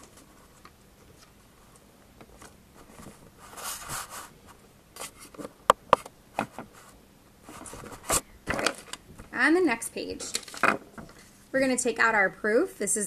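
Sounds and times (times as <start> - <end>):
paper rustling: 0.0 - 5.5, 6.4 - 9.0.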